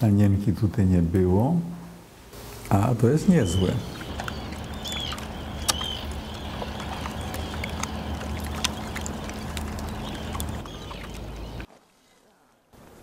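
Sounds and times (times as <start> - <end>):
steady low hum: 1.8 - 11.7.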